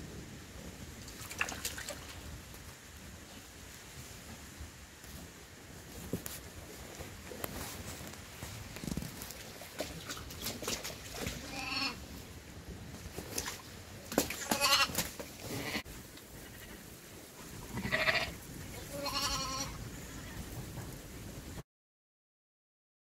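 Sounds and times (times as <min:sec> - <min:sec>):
sheep bleating: 0:11.4 - 0:12.0, 0:14.5 - 0:15.8, 0:17.7 - 0:19.8.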